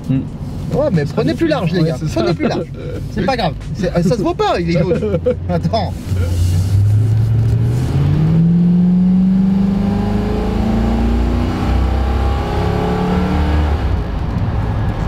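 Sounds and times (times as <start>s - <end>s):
car engine accelerating hard: 4.8s - 15.0s.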